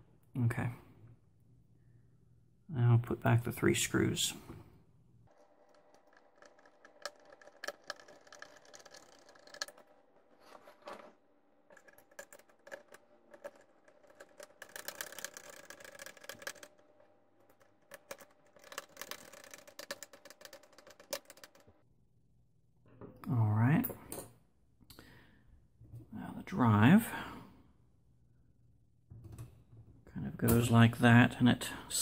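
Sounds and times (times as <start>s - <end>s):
screwdriver clicks and rattles: 5.4s - 9.9s, 11.7s - 16.7s, 17.5s - 21.7s.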